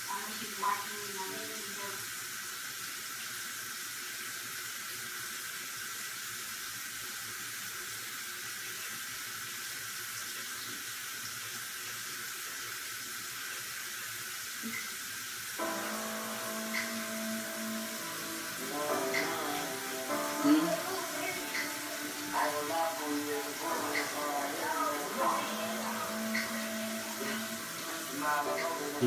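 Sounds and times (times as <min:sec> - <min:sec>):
sink tap running: 0:12.6 - 0:29.0
music: 0:15.6 - 0:29.0.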